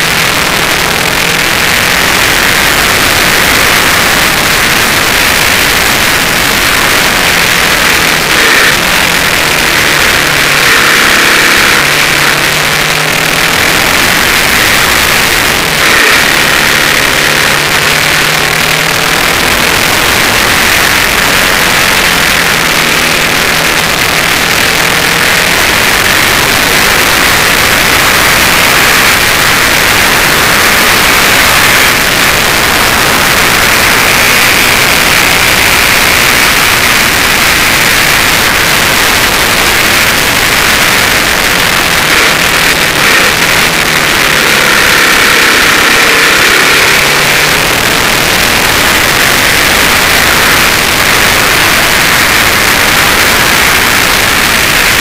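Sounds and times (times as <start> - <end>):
faint motorcycle engine: 0.0 - 55.0.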